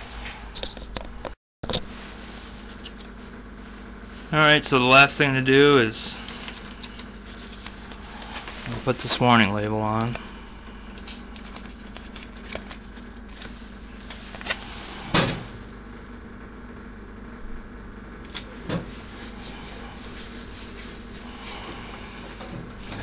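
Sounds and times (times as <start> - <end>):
label rustling as rubbed down: 6.2 - 9.1, 18.8 - 21.9
paper label being handled: 11.0 - 14.7.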